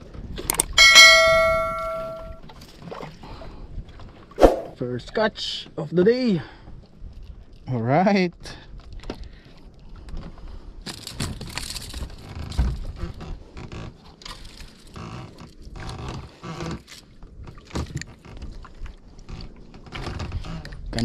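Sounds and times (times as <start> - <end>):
handling knocks and rustles in boat: 0.0 - 4.4, 8.7 - 21.0.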